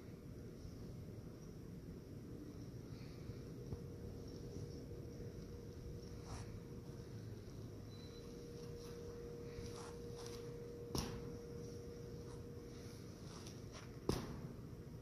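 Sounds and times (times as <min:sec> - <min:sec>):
steady hum: 0:00.0 - 0:15.0
sharp slaps: 0:10.9 - 0:11.3, 0:14.0 - 0:14.5.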